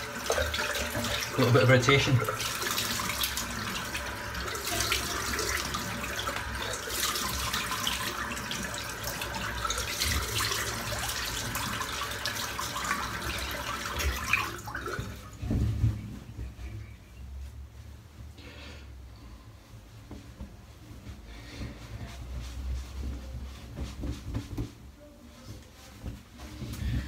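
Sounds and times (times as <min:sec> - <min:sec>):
tap water running into sink: 0:00.0 - 0:15.6.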